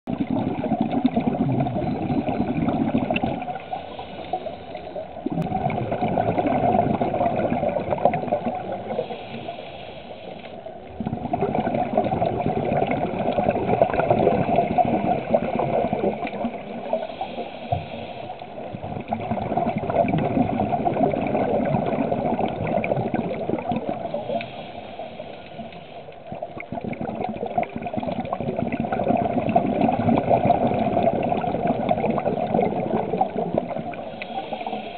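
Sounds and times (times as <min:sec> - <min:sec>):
exhaled bubbles gurgling underwater: 0:00.1 - 0:34.9
regulator inhalations: 0:03.5 - 0:05.2, 0:08.8 - 0:10.7, 0:16.8 - 0:18.8, 0:24.0 - 0:26.4, 0:33.9 - 0:34.9.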